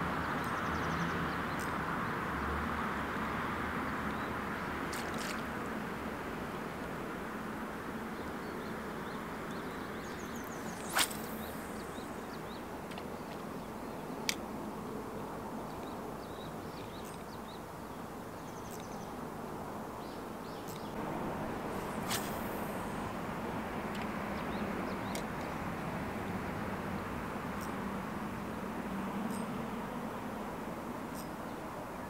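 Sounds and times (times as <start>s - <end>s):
river hiss: 0.1s - 16.8s, 19.2s - 32.0s
faint bird chirps: 8.2s - 14.2s, 15.7s - 19.2s
sharp swish: 10.5s - 12.3s, 21.7s - 23.1s.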